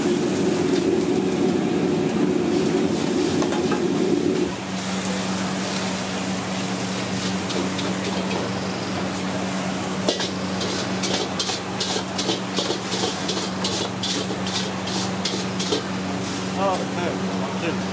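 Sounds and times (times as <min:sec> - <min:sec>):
steady hum of wok range: 0:00.0 - 0:17.9
brush scrubbing a wet wok: 0:10.1 - 0:16.4.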